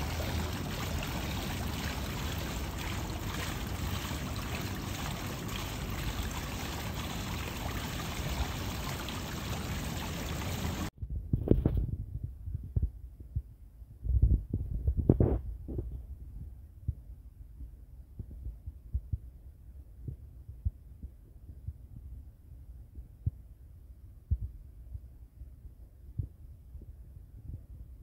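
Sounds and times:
water rushing in pool: 0.0s - 10.9s.

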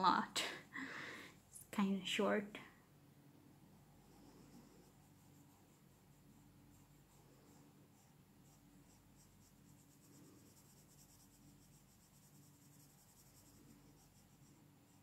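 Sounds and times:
pencil scratching on paper: 3.9s - 15.0s.

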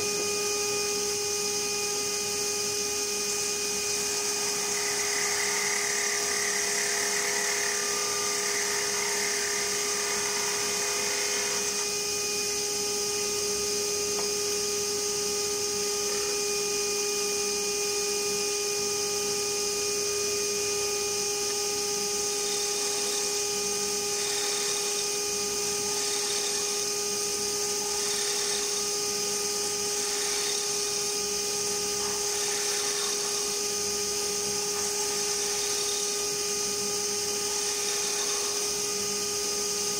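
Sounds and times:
wood lathe whine: 0.0s - 39.9s
rough grinding noise: 3.8s - 11.9s, 29.7s - 31.0s, 31.6s - 33.6s.

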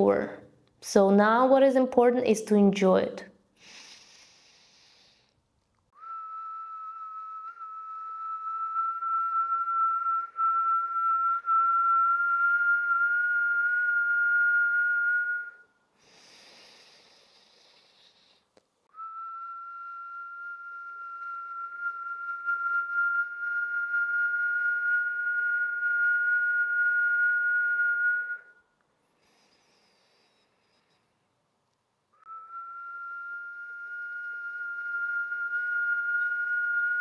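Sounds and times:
hissing breath in: 3.6s - 5.4s, 16.0s - 18.5s
whistled exhale through lips: 3.6s - 5.4s, 6.0s - 10.4s, 16.0s - 23.4s, 29.2s - 31.3s.

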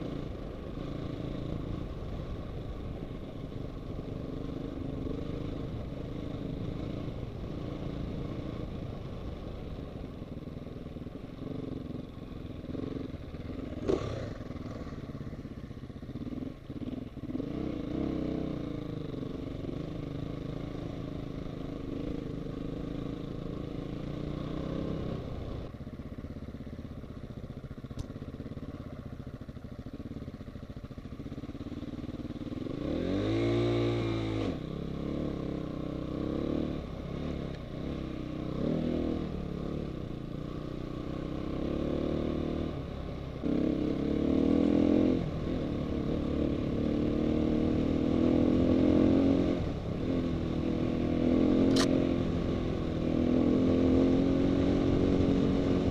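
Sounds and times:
dirt bike engine revving: 13.6s - 15.0s, 32.6s - 35.5s, 43.4s - 55.9s.

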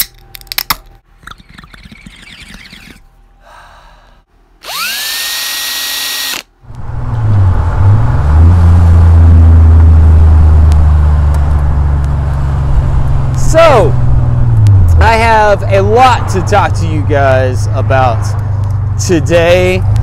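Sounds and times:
power drill whine: 4.6s - 6.5s
pickup truck engine with loud exhaust: 6.7s - 20.0s.

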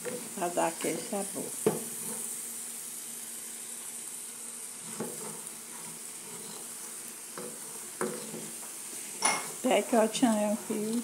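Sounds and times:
spoon stirring in pan: 0.0s - 2.6s, 4.6s - 11.0s
meat sizzling in a frying pan: 0.0s - 11.0s.

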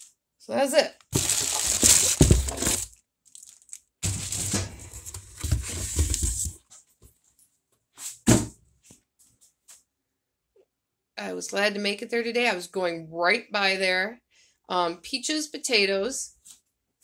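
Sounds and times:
plastic bag crinkling: 1.0s - 6.5s.

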